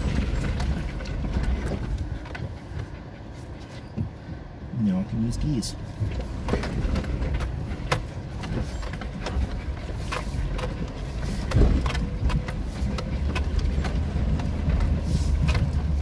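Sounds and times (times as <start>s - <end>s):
knocks and rattles over stones: 0.0s - 2.8s, 6.0s - 16.0s
car engine running low: 0.0s - 16.0s.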